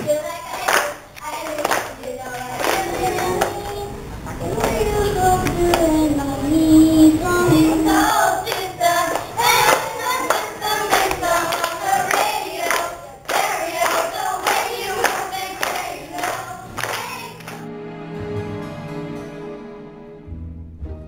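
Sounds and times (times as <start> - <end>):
hands clapping a beat: 0.0 - 3.7, 8.5 - 17.6
girls singing into microphones: 0.0 - 17.6.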